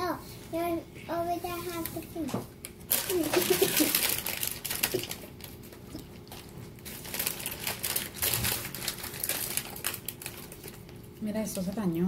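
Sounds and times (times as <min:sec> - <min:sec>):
snack packaging crinkling: 0:01.8 - 0:11.2.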